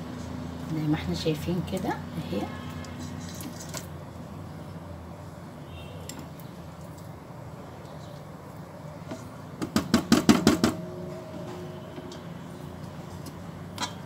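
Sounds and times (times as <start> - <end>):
rapid sharp knocks: 9.6 - 10.8.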